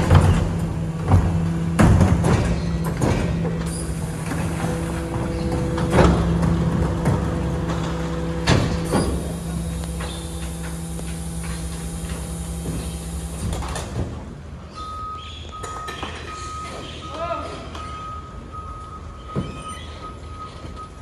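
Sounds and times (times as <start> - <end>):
bins clanking on hopper: 0.0 - 14.4
hydraulic packer humming: 0.0 - 14.6.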